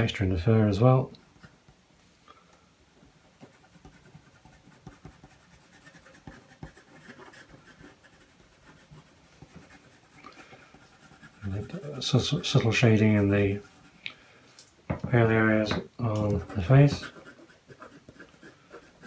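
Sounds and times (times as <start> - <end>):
pencil scratching on card: 3.4 - 14.0, 16.2 - 19.0.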